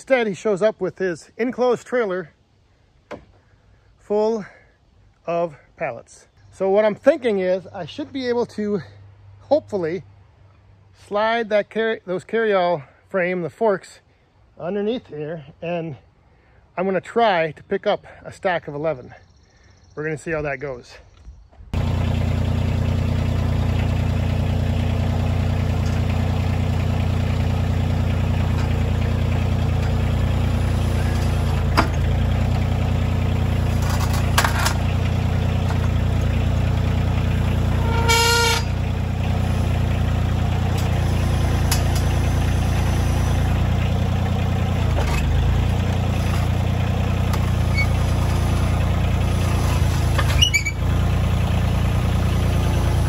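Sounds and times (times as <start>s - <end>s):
tractor diesel engine running: 21.7s - 53.0s
brief high squeal: 37.8s - 38.8s, 50.3s - 50.8s.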